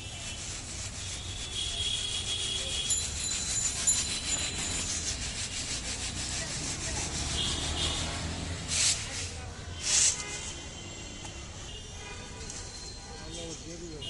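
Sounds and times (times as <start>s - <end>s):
sand sifting: 0.0s - 10.2s.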